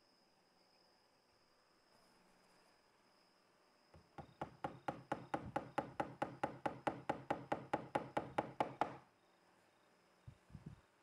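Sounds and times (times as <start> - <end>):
fingers tapping on wood: 4.0 - 9.0.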